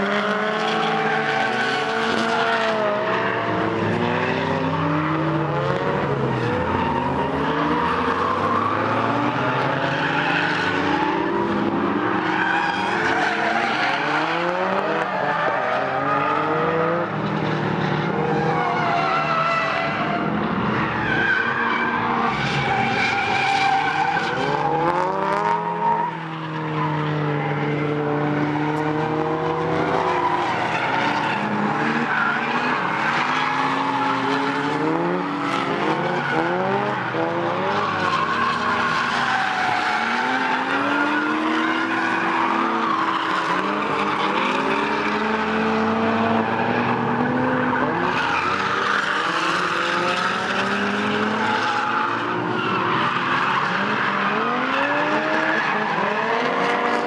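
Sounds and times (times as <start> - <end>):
car engine revving hard: 31.0 - 39.0, 53.2 - 57.0.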